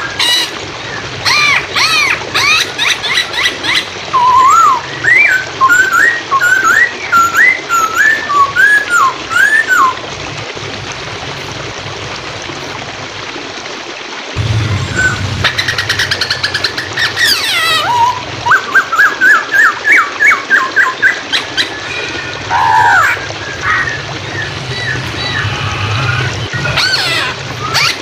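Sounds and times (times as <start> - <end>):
flowing water rushing: 0.0 - 28.0
bird singing varied phrases: 1.3 - 10.0, 15.0 - 28.0.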